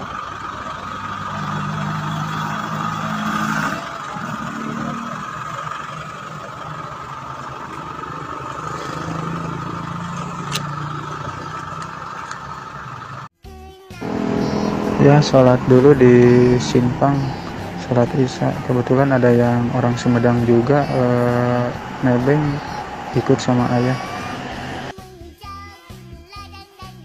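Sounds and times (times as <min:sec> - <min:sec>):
vehicle engines idling: 0:00.0 - 0:13.3, 0:14.0 - 0:24.9
constant higher drone: 0:14.0 - 0:24.9.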